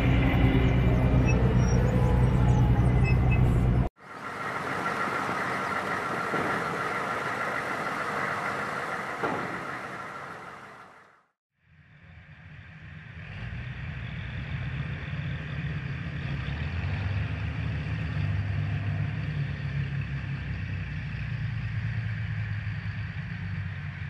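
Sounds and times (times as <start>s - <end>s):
diesel engine humming: 0.0s - 11.3s
vehicle running with faint whine: 0.0s - 24.0s.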